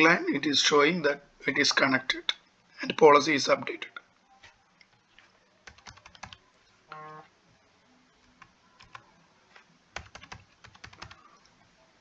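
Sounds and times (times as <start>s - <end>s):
keyboard and mouse clicking: 5.7s - 6.4s, 8.3s - 11.2s.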